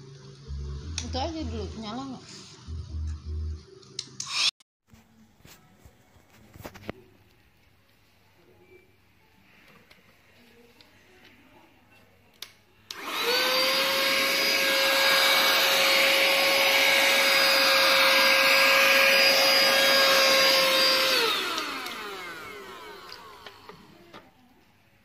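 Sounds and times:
vacuum cleaner motor whine: 12.9s - 24.2s.

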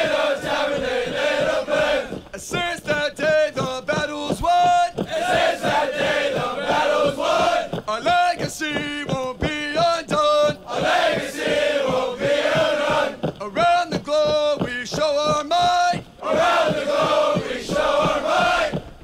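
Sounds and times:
group of voices chanting: 0.0s - 2.2s, 5.1s - 7.8s, 10.5s - 13.2s, 16.2s - 18.8s
man singing lead: 2.3s - 6.6s, 7.3s - 16.1s.

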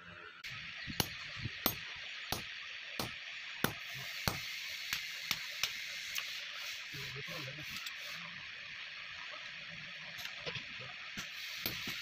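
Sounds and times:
steady hiss: 0.5s - 12.0s
hammer striking steel on anvil: 1.0s - 5.8s, 11.2s - 12.0s.

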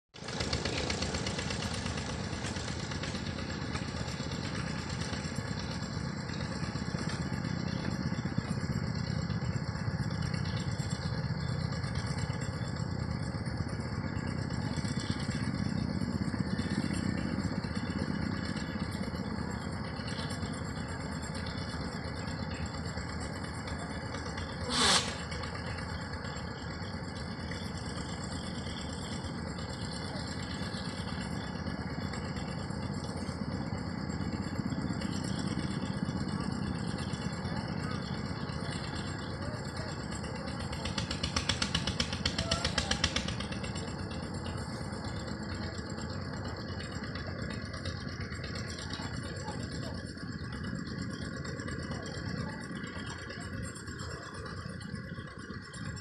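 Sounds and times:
engine running with a rattle: 0.1s - 56.0s
short sharp noise: 24.6s - 25.4s.

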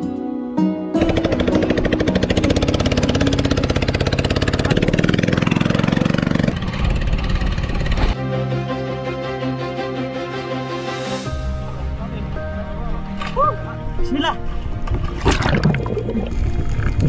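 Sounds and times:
boat engine running: 1.0s - 8.2s.

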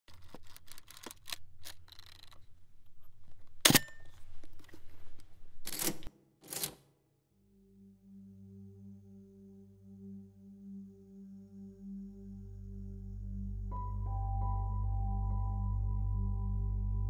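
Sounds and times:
mechanical clicks: 0.1s - 2.5s
low hum: 7.4s - 17.0s.

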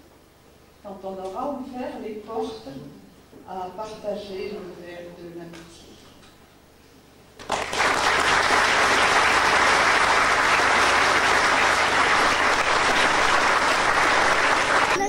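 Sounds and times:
audience applauding: 7.4s - 15.0s.

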